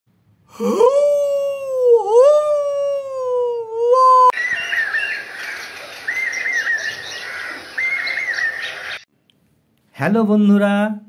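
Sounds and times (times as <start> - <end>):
bird chirps: 4.3 - 9.1.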